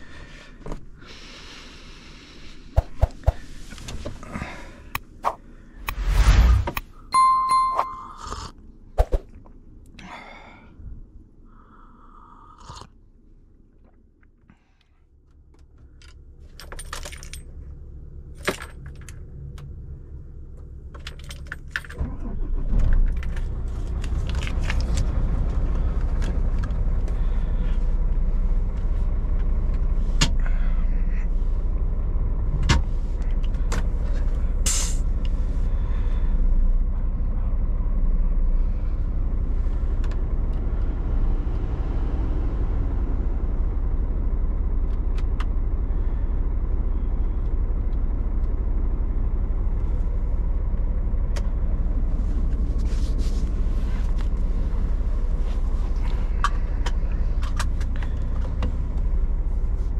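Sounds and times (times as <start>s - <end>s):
diesel truck engine idling: 25.0s - 41.8s.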